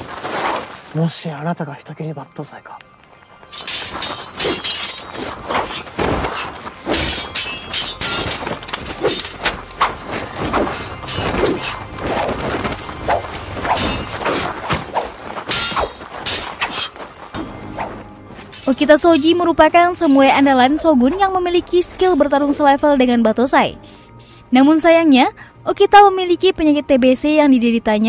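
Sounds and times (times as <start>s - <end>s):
swishes and scuffling: 0.0s - 1.0s, 3.8s - 19.4s
swords clashing: 3.5s - 19.4s.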